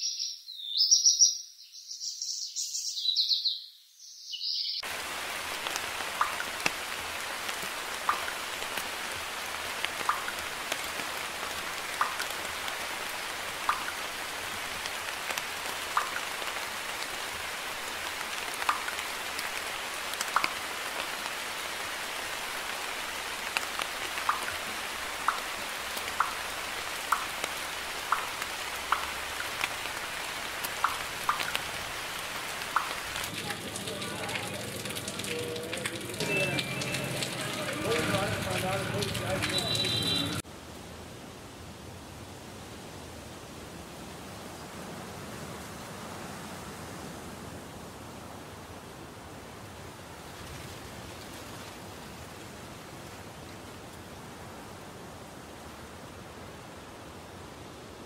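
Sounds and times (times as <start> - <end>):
raindrops ticking: 4.8 - 40.4
rain hissing: 4.8 - 40.8
birds chirping: 39.4 - 40.4.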